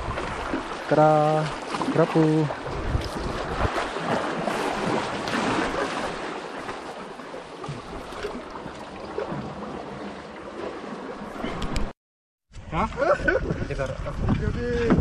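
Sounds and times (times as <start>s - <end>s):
seawater washing between boulders: 0.0s - 11.9s.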